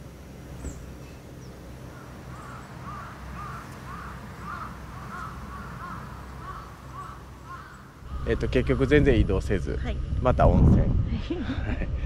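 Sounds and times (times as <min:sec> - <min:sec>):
steady low hum: 0:00.0 - 0:12.0
crow cawing: 0:01.9 - 0:09.1.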